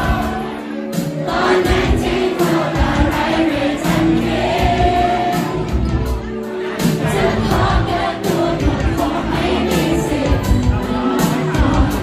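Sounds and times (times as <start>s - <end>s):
drum and cymbal beat: 0.0s - 12.0s
woman singing lead: 6.7s - 12.0s.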